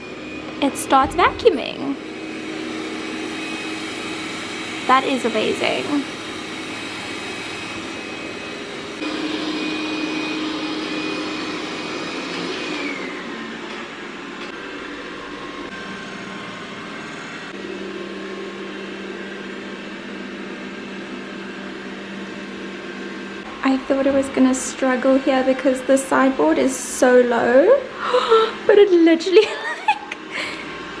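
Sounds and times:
robot vacuum whirring: 0.0s - 18.8s.

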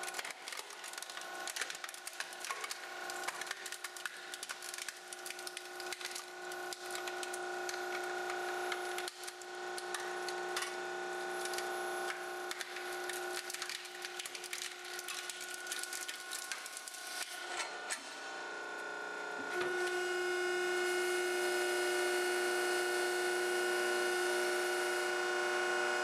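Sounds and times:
metal casing crackling and snapping: 0.0s - 10.7s, 12.4s - 17.3s
hydraulic unit whine: 17.4s - 26.0s.

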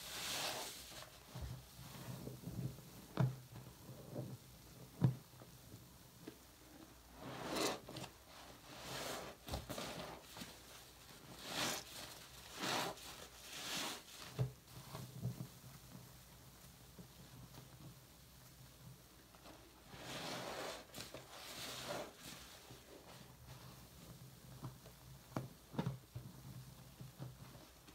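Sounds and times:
wet sponge squelching: 11.3s - 14.2s.

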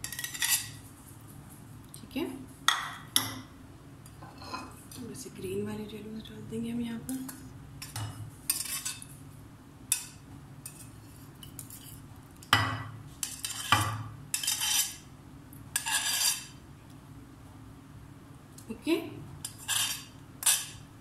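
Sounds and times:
knife scraping a plate: 0.0s - 0.8s, 4.3s - 4.8s, 7.8s - 9.1s, 10.6s - 12.0s, 13.2s - 15.0s, 15.8s - 16.6s, 19.4s - 20.9s.

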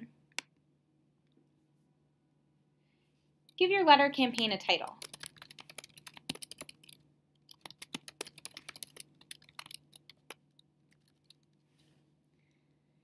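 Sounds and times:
typing on computer keyboard: 4.4s - 11.6s.

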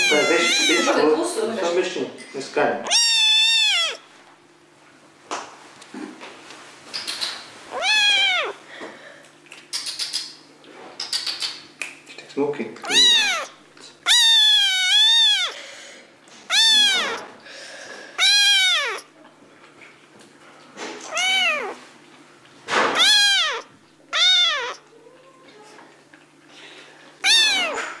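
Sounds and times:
kitten meowing: 0.0s - 1.2s, 2.8s - 4.0s, 7.7s - 8.6s, 12.8s - 15.6s, 16.5s - 17.3s, 18.2s - 19.1s, 21.0s - 21.8s, 22.8s - 24.8s, 27.2s - 28.0s.

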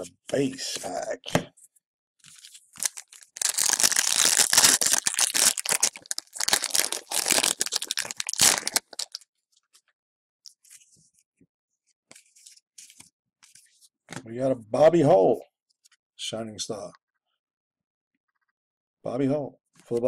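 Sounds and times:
wrapper being torn and crinkled: 2.2s - 9.2s.

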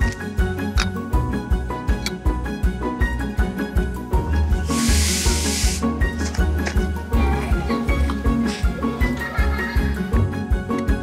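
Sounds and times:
background music with beat: 0.0s - 11.0s
short hiss: 4.6s - 6.1s.

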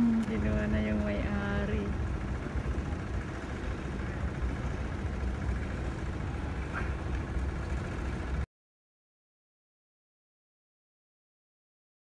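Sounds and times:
low outdoor rumble: 0.0s - 8.5s.

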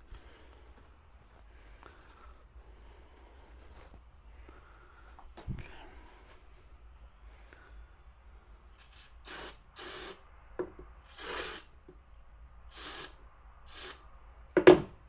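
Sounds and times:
aerosol spray hissing: 8.8s - 10.2s, 11.1s - 11.7s, 12.7s - 14.0s.

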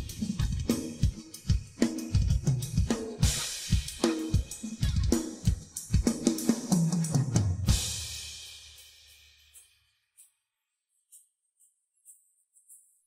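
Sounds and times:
rock drum kit playing: 0.0s - 8.7s.

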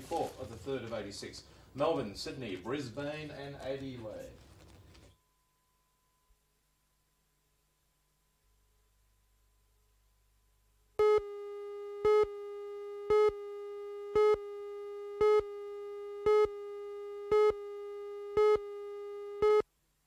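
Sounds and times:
countdown beeps: 11.0s - 11.4s, 12.0s - 12.4s, 13.0s - 14.6s, 15.2s - 15.6s, 16.2s - 16.6s, 17.3s - 17.7s, 18.4s - 18.7s, 19.4s - 19.6s.

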